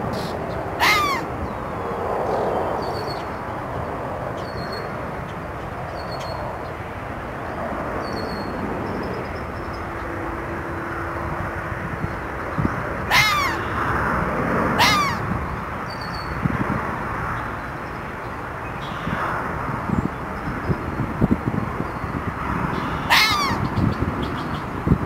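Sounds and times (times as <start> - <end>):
fox barking: 0.8 - 1.3, 13.1 - 13.7, 14.8 - 15.3, 23.0 - 23.7.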